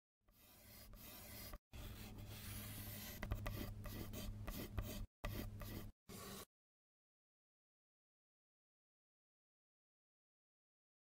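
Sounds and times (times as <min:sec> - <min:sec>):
pen scratching across paper: 0:00.3 - 0:06.5.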